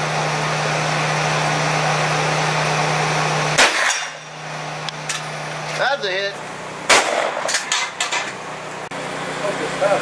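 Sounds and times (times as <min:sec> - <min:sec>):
loud gunshot: 0:03.6 - 0:04.1, 0:06.9 - 0:07.6.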